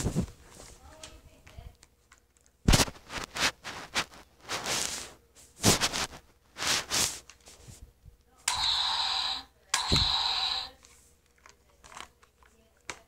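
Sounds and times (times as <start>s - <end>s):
breathy hissing blasts: 8.5s - 10.8s.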